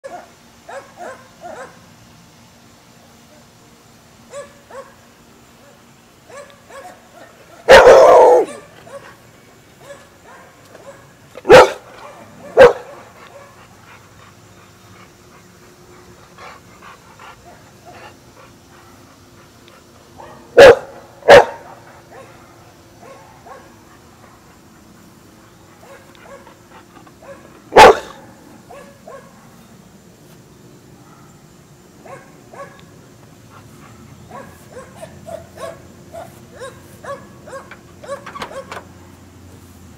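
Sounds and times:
dog barking: 0.0 - 1.8, 4.3 - 5.0, 5.6 - 9.2, 9.8 - 13.6, 20.2 - 23.8, 25.8 - 26.4, 27.2 - 29.4, 31.0 - 31.4, 32.0 - 32.8, 34.3 - 38.8.

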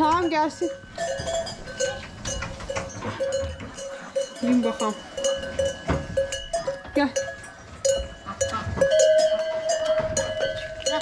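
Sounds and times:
livestock bells clanking: 0.0 - 11.0.

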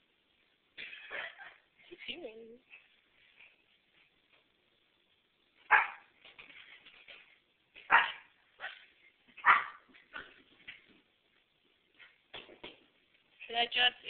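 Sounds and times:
puppy barking: 5.7 - 6.1, 7.9 - 9.9.

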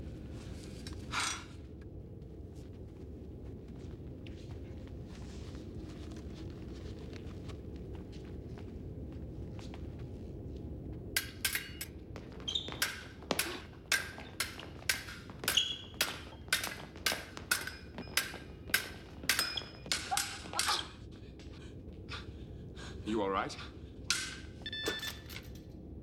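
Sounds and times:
fencing foils clashing: 11.2 - 21.0, 24.1 - 25.6.

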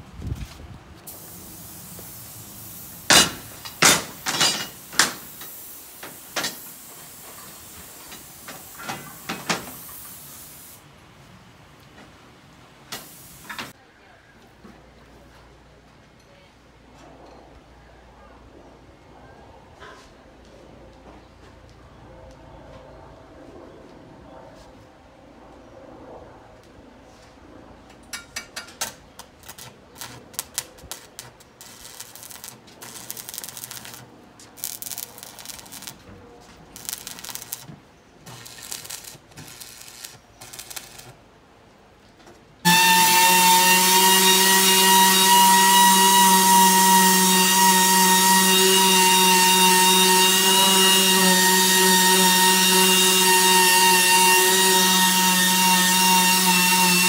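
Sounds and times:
short crackles and clicks: 29.4 - 36.0, 36.8 - 37.7, 38.3 - 41.2
power grinder whining: 42.7 - 57.0.

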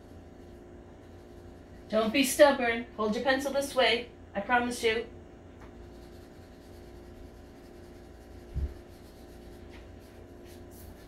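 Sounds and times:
pencil scratching on paper: 0.0 - 2.5, 5.7 - 11.0
steady low hum: 0.0 - 11.0.

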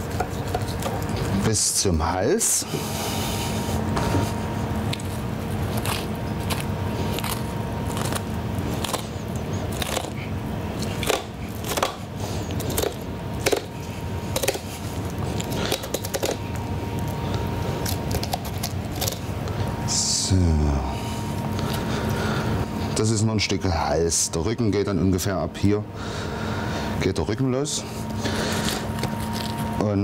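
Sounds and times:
steady background hum: 0.0 - 30.0
knife cutting along bone: 5.7 - 16.4.

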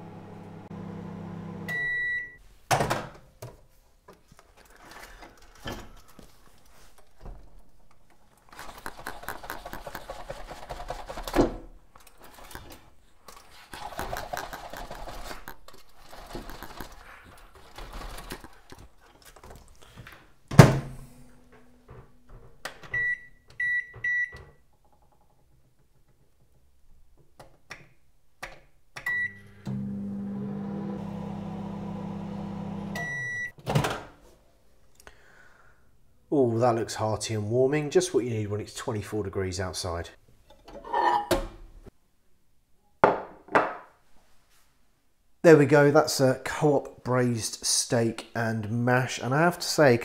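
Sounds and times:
microwave humming: 0.0 - 2.4, 29.1 - 33.5
microwave timer beep: 0.0 - 2.4, 22.9 - 24.4, 29.1 - 33.5.

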